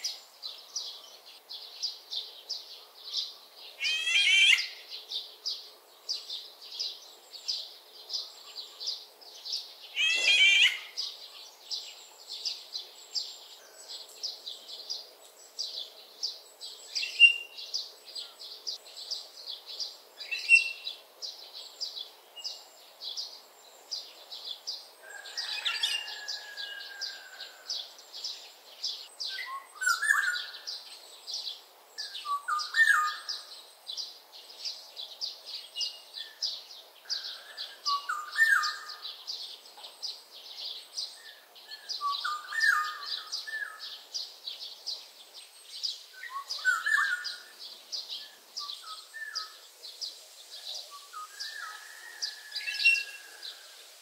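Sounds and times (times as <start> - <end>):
bird whistling phrases: 3.8 - 4.8, 10.0 - 10.9.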